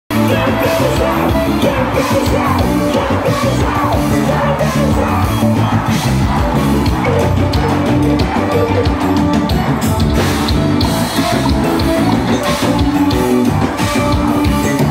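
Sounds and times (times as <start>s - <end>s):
people singing: 0.1s - 9.7s
crowd yelling and cheering: 0.1s - 14.9s
gospel band playing loudly: 0.1s - 14.9s.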